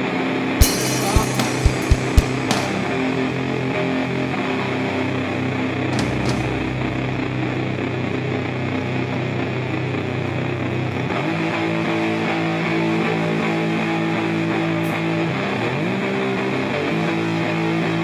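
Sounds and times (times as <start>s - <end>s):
electric guitar sliding chords: 0.0s - 18.0s
live band music: 0.6s - 3.2s.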